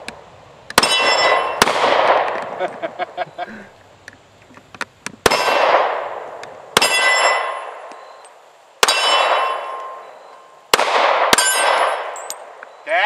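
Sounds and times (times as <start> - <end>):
metallic ringing: 0.8 - 1.6, 6.8 - 10.5, 11.3 - 12.5
pistol shots: 0.8 - 2.5, 5.2 - 7.9, 8.8 - 10.1, 10.7 - 12.6.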